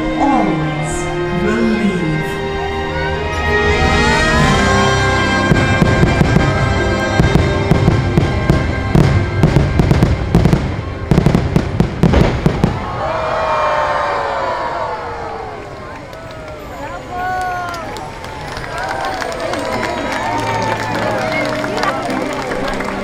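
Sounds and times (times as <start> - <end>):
music: 0.0 - 12.1, 19.2 - 23.0
fireworks bursting: 5.3 - 13.0.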